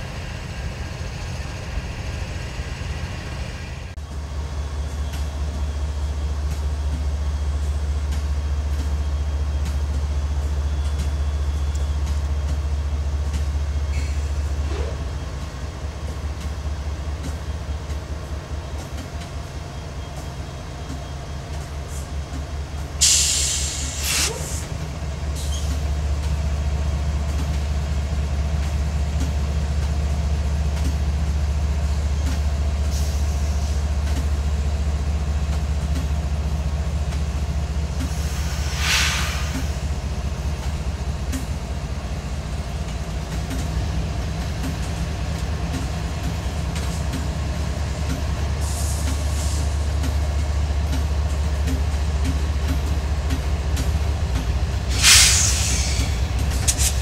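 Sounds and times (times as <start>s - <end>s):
locomotive engine droning: 0.0s - 57.0s
sharp air hiss: 23.0s - 24.7s, 38.2s - 39.9s, 54.9s - 57.0s.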